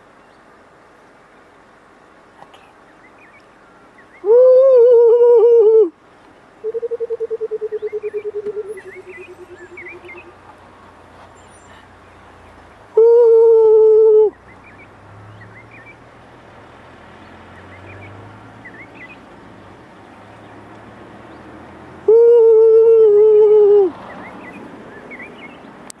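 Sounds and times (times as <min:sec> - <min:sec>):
small birds chirping: 0:00.0 - 0:04.3, 0:06.2 - 0:13.0, 0:14.2 - 0:21.7, 0:23.9 - 0:26.0.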